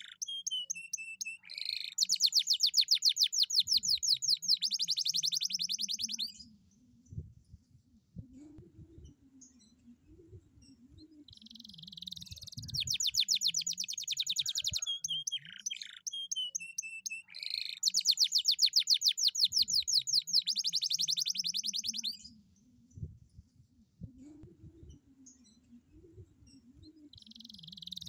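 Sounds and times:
canary singing trills: 0:00.0 - 0:06.5, 0:10.6 - 0:22.4, 0:26.4 - 0:28.0.

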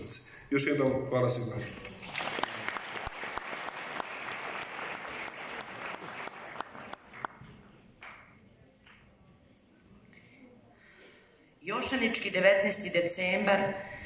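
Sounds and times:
audience applauding: 0:02.0 - 0:08.2.

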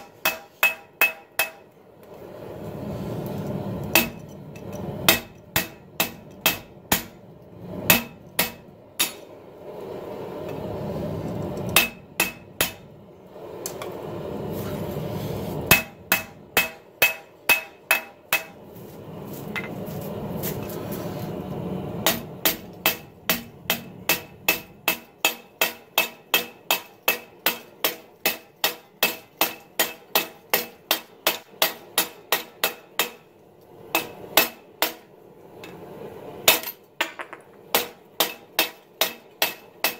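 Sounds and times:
hammer striking on anvil: 0:00.0 - 0:01.7, 0:03.9 - 0:04.2, 0:05.1 - 0:07.2, 0:07.9 - 0:09.2, 0:11.8 - 0:12.8, 0:15.7 - 0:18.6, 0:22.0 - 0:33.2, 0:36.5 - 0:39.9.

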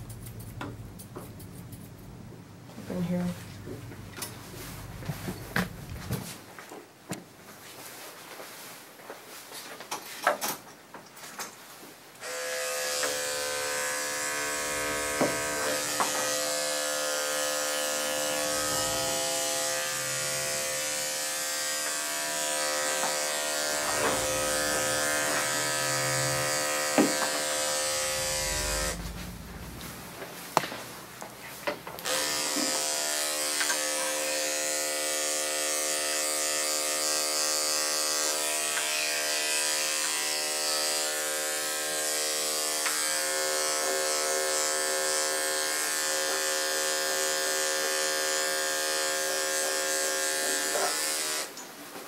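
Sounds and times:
electric clippers humming: 0:12.2 - 0:30.0, 0:32.0 - 0:51.5.

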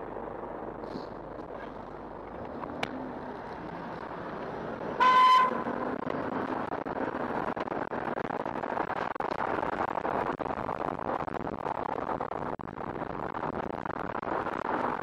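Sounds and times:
road and wind noise: 0:00.0 - 0:15.0
car horn toot: 0:05.0 - 0:05.7.

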